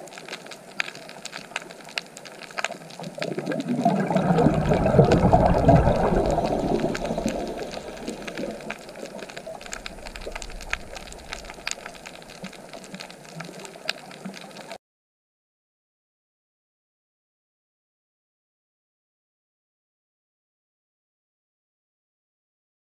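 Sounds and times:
sharp clicks and crackles: 0.0 - 14.8
water rushing underwater: 0.0 - 14.8.

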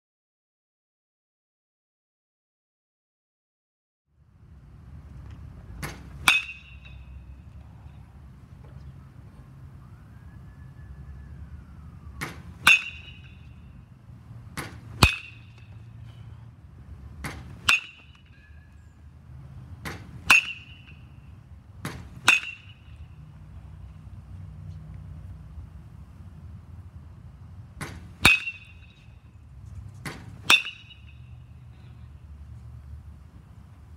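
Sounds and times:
metal bat hitting ball: 5.8 - 7.2, 12.2 - 13.5, 14.6 - 15.8, 17.2 - 18.4, 19.8 - 21.1, 21.8 - 23.0, 27.8 - 29.0, 30.0 - 31.2.

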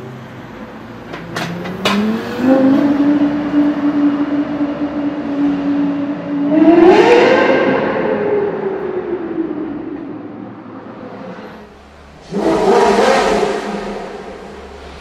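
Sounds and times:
second car loud rev: 1.5 - 8.1, 11.4 - 15.0
sports car engine revving: 1.5 - 15.0.

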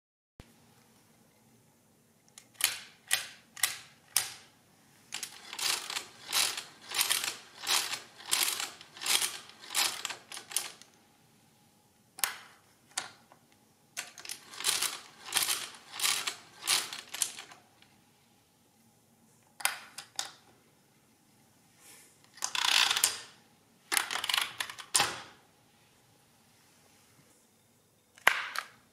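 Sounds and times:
crank gears clattering: 5.1 - 10.8, 14.0 - 17.6.

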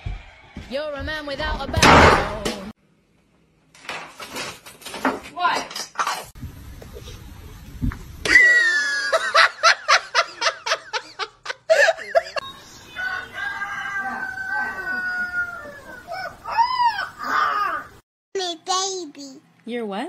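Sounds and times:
rising and falling yowl: 8.3 - 9.2, 13.0 - 18.0
puppy howling: 14.0 - 18.0.

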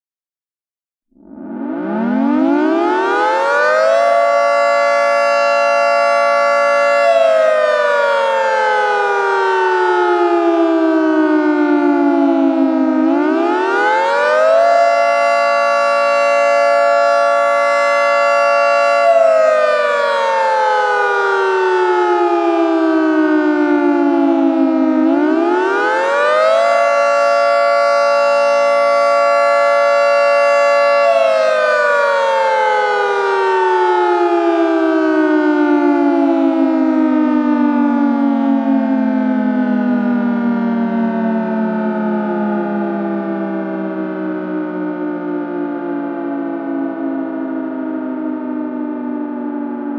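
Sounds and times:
two-tone siren winding up and down: 1.2 - 49.9.

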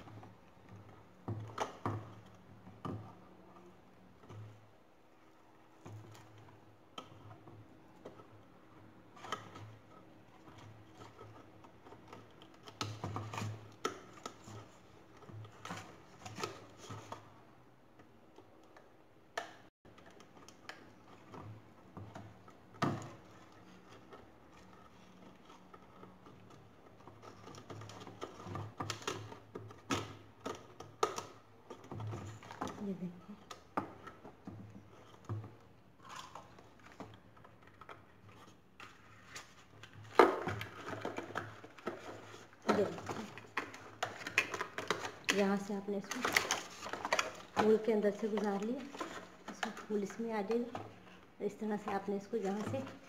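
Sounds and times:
plastic bottle clicking and crinkling: 33.4 - 50.1.

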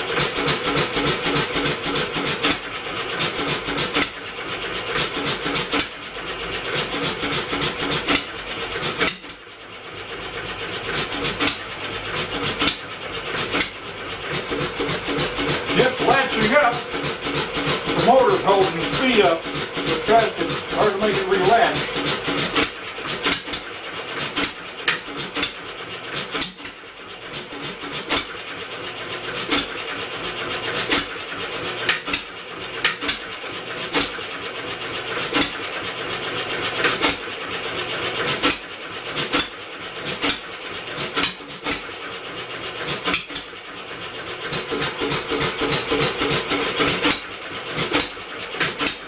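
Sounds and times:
engine mechanical hum: 0.0 - 49.0
engine firing pops: 0.1 - 4.2, 21.5 - 28.4, 31.8 - 34.2, 38.2 - 41.9.

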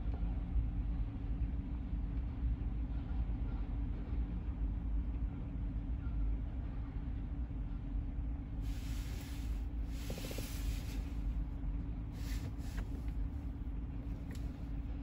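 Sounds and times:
hiss: 8.6 - 11.2, 12.2 - 12.9.

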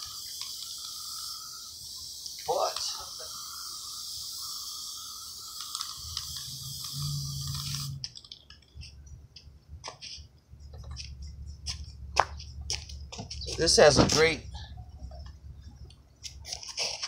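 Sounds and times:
aerosol spray can hissing: 0.0 - 8.1.

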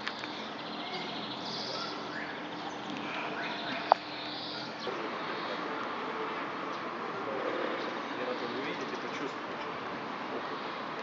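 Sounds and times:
birds chirping: 0.0 - 5.8, 7.7 - 9.5
outdoor background noise: 0.0 - 11.0.

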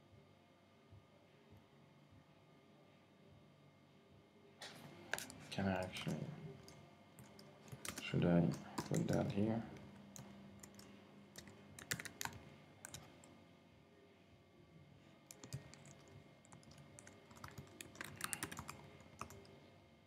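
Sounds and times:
faint computer keyboard typing: 5.1 - 13.3, 15.2 - 19.6.

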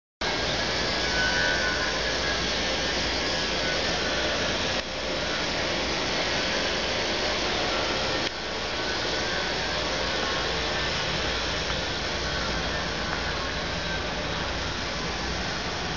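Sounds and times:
diesel engine droning: 0.2 - 15.9.

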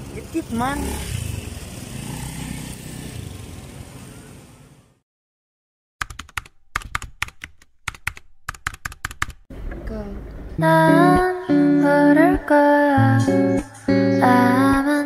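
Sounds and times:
street noise with low rumble: 0.0 - 5.0, 9.5 - 15.0.

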